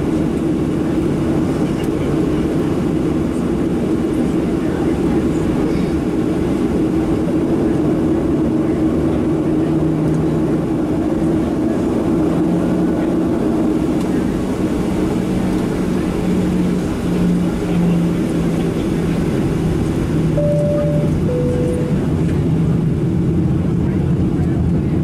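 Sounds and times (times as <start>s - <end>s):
jet engines humming in cabin: 0.0s - 25.0s
low engine tone: 13.9s - 25.0s.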